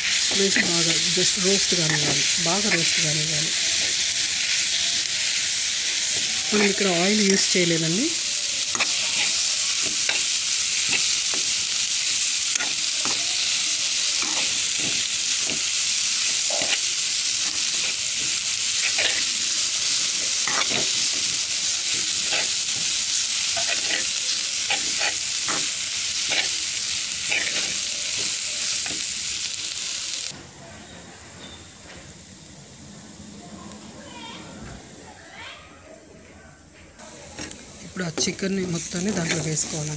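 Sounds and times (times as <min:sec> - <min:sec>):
paste sizzling in a frying pan: 0:00.0 - 0:30.4, 0:37.0 - 0:39.9
metal spatula scraping a pan: 0:08.7 - 0:11.5, 0:16.4 - 0:19.3, 0:20.0 - 0:21.4, 0:23.5 - 0:26.5.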